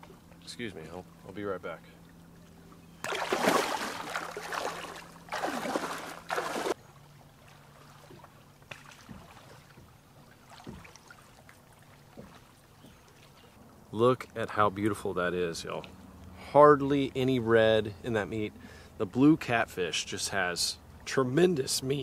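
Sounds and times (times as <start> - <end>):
water splashing and sloshing: 0.0 - 14.4.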